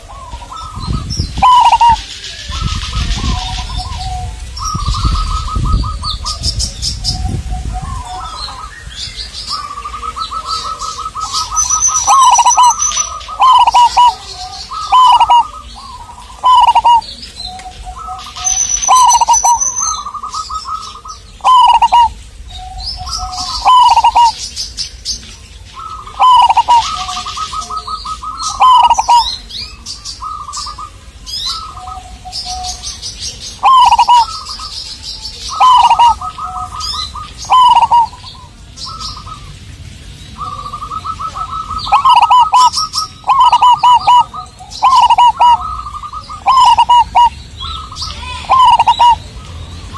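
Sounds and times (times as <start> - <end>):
dove cooing: 0.0 - 24.5, 25.8 - 39.6, 40.4 - 49.9
small birds chirping: 0.0 - 49.9.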